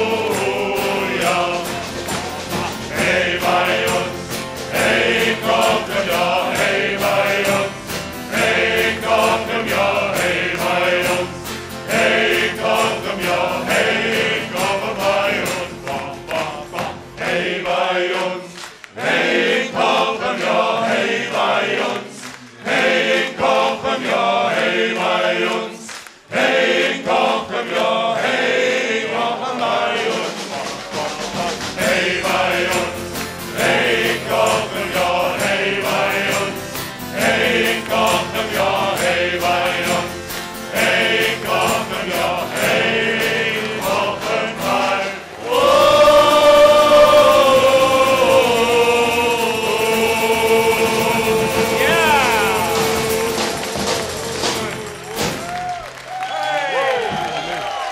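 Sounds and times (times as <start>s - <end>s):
acoustic guitars: 0.0s - 18.8s, 29.1s - 56.0s
men singing in chorus: 0.0s - 55.3s.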